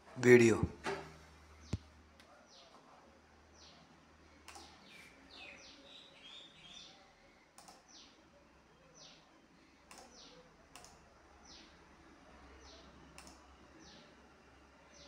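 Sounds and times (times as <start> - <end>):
faint clicks: 4.4 - 4.8, 7.6 - 7.9, 9.9 - 11.0, 13.2 - 13.4.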